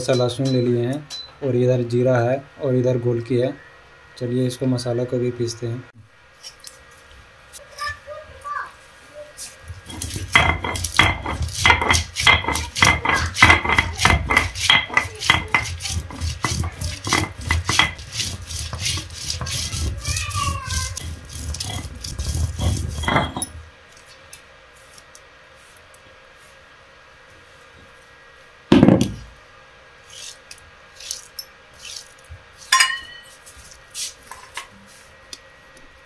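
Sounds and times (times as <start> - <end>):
stone grinding on stone: 9.8 - 23.6.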